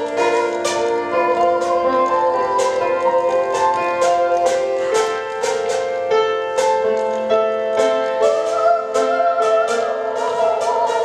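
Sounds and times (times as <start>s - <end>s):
piano notes: 0.0s - 11.0s.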